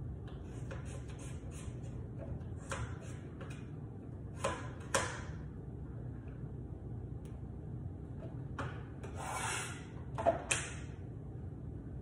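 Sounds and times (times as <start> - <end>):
knife scraping: 9.0 - 9.9.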